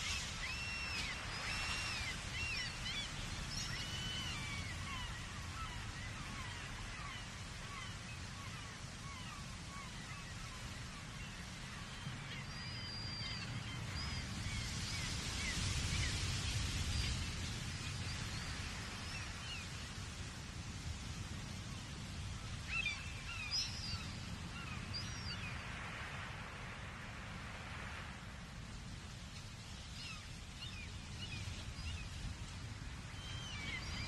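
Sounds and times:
distant ocean surf: 0.0s - 34.0s.

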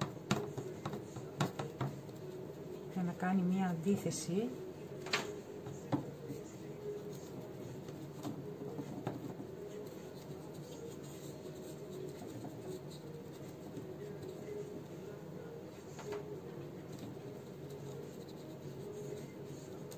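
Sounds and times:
paintbrush scratching: 5.8s - 14.7s, 16.8s - 19.9s.

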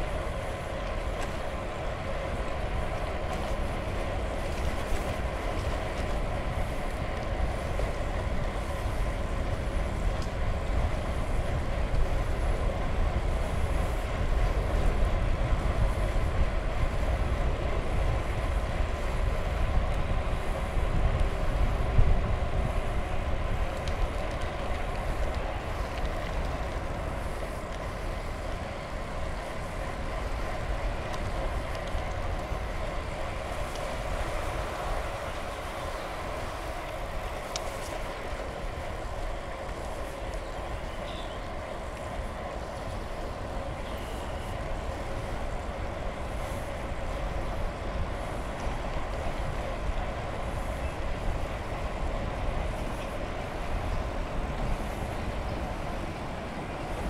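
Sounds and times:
bicycle rolling on pavement: 0.0s - 57.0s
wind on microphone: 0.0s - 57.0s
faint ticks: 4.4s - 12.2s, 22.6s - 56.3s.

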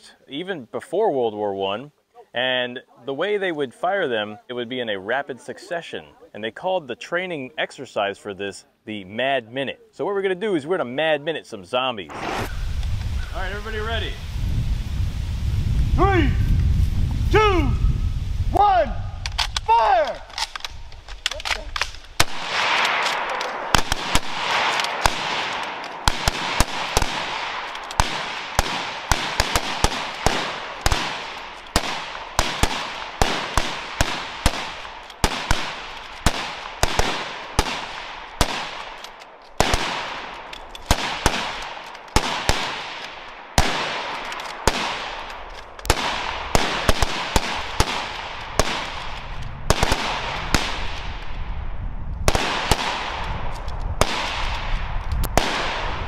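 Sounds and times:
rifles firing rapidly: 19.3s - 51.1s, 52.3s - 53.2s.

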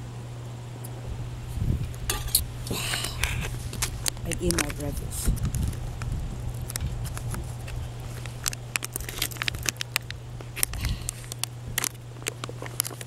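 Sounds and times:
low steady hum: 0.0s - 13.0s
spoon scraping in foil pouch: 7.0s - 11.4s.

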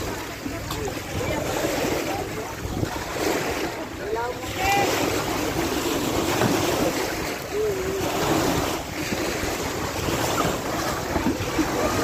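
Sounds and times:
seawater washing around boat: 0.0s - 12.0s
wind buffeting microphone: 0.0s - 12.0s.

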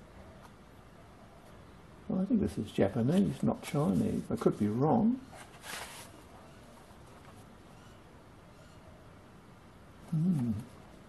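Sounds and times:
man humming hmm: 10.0s - 10.8s.

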